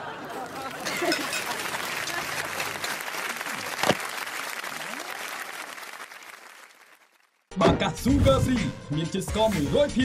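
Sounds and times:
applause: 0:00.3 - 0:07.5.

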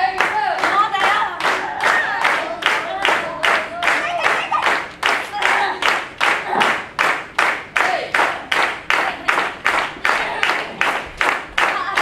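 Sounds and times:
audience clapping in unison: 0:00.0 - 0:12.0.

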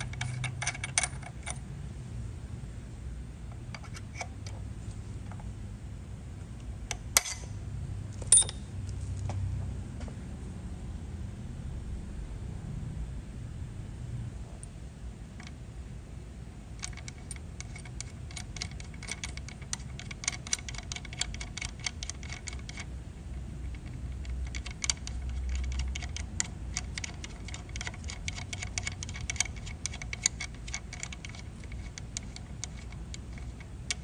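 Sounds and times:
bolt threading with light ticks: 0:00.0 - 0:01.6, 0:16.8 - 0:22.9, 0:23.6 - 0:34.0.

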